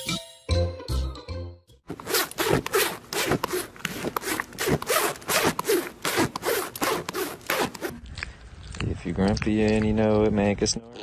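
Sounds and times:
horse muzzle rasping on microphone: 0:02.0 - 0:07.9.

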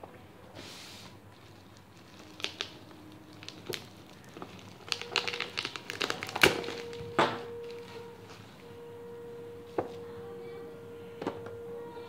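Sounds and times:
bubble wrap crinkling: 0:01.2 - 0:08.7.

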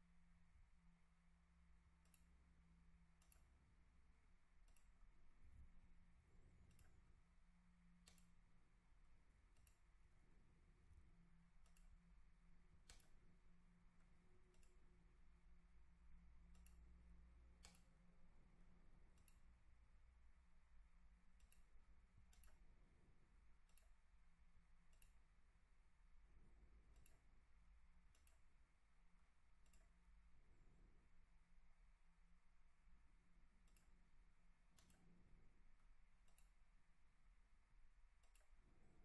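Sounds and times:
low steady hum: 0:00.0 - 0:39.0
computer mouse clicks: 0:02.0 - 0:02.4, 0:03.2 - 0:03.7, 0:04.6 - 0:05.6, 0:06.3 - 0:07.3, 0:08.0 - 0:08.5, 0:09.5 - 0:09.9, 0:11.6 - 0:12.0, 0:12.7 - 0:13.4, 0:14.0 - 0:14.9, 0:16.4 - 0:18.0, 0:19.1 - 0:19.6, 0:21.3 - 0:24.0, 0:24.8 - 0:25.3, 0:26.9 - 0:27.4, 0:28.0 - 0:28.6, 0:29.6 - 0:30.8, 0:33.6 - 0:36.8, 0:38.1 - 0:39.0.

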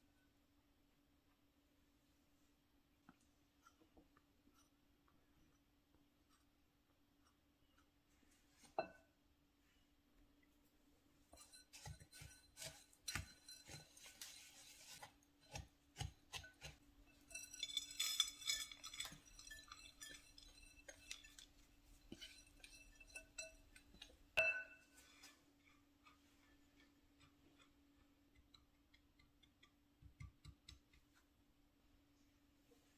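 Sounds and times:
glassware clinking and scraping: 0:11.3 - 0:15.6, 0:16.3 - 0:27.0.

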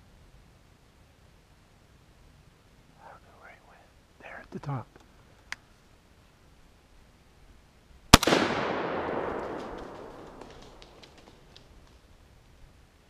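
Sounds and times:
gunshot with long echo: 0:08.1 - 0:11.7.

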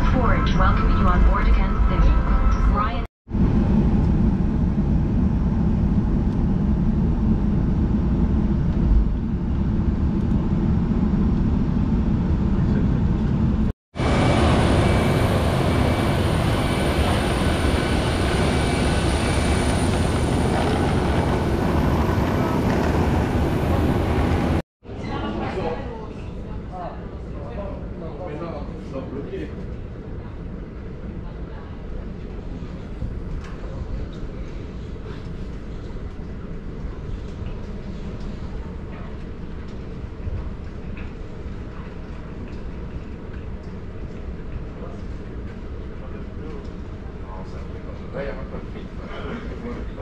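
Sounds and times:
high-pitched whine: 0:00.0 - 0:06.2, 0:11.8 - 0:24.6
jet aircraft roar: 0:00.0 - 0:24.6
indoor terminal rumble: 0:00.0 - 0:50.0.

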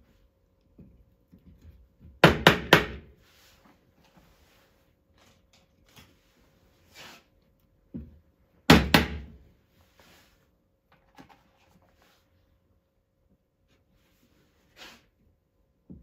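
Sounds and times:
hammer striking wood: 0:02.2 - 0:03.1, 0:08.7 - 0:09.3.

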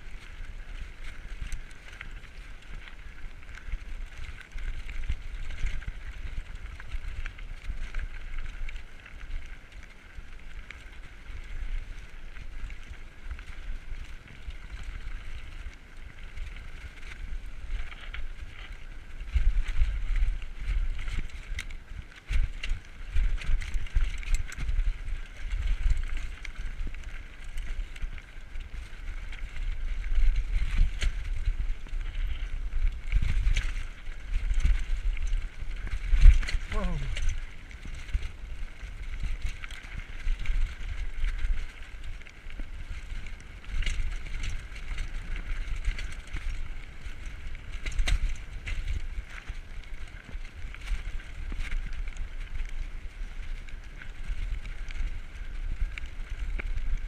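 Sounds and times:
bike rattling: 0:00.0 - 0:57.0
bike tyres crunching over stones: 0:00.0 - 0:57.0
wind buffeting microphone: 0:16.4 - 0:52.4.

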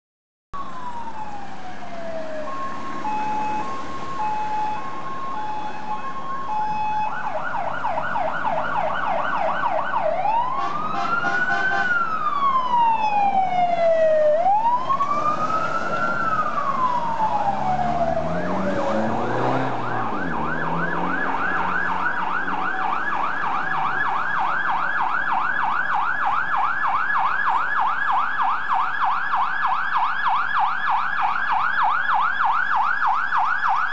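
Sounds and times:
fire engine sirens: 0:00.6 - 0:33.9
deep sound sliding down in pitch: 0:13.1 - 0:24.0.

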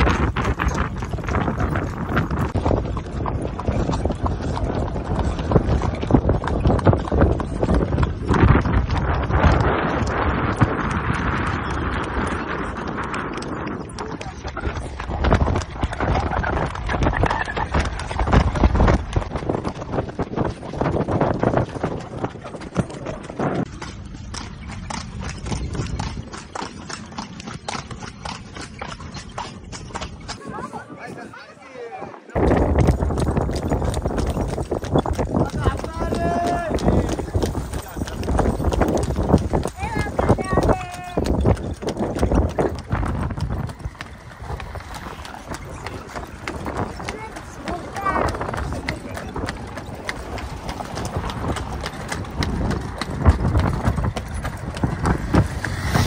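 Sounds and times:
horse hooves on hard road: 0:00.0 - 0:31.4, 0:32.3 - 0:56.0
low rumble: 0:48.3 - 0:56.0.

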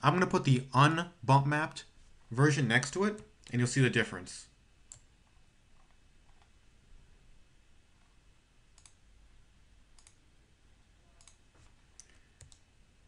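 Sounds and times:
computer mouse clicks: 0:04.9 - 0:05.1, 0:08.8 - 0:09.0, 0:09.9 - 0:10.2, 0:11.2 - 0:12.7.

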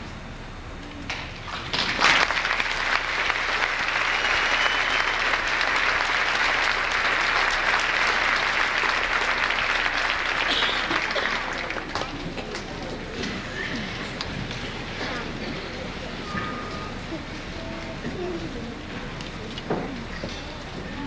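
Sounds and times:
audience applauding: 0:01.5 - 0:13.1.

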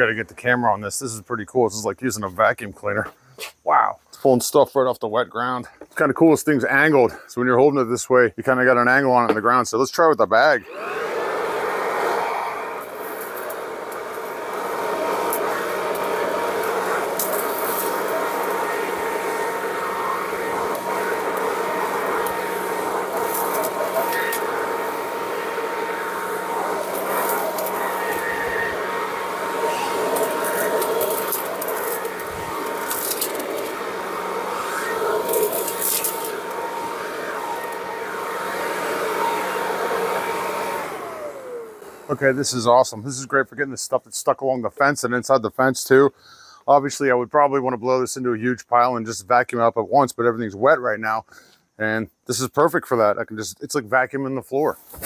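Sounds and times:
electric leaf blower-vac running: 0:10.5 - 0:42.6
debris crackling through mulcher: 0:11.8 - 0:39.4.

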